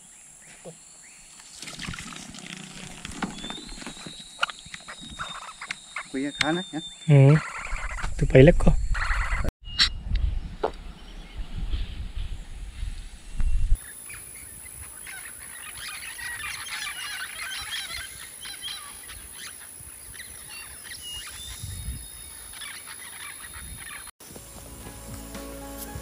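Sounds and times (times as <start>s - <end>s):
flock of birds calling: 2.8s - 8.2s, 8.9s - 9.9s, 13.8s - 24.1s
low rumbling noise: 9.7s - 13.8s.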